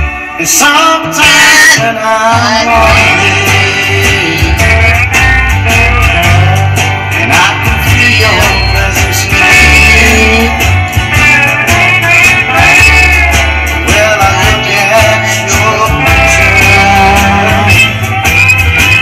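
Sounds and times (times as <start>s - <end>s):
rock band backing music: 0.0s - 19.0s
woman singing rock song: 12.0s - 17.7s.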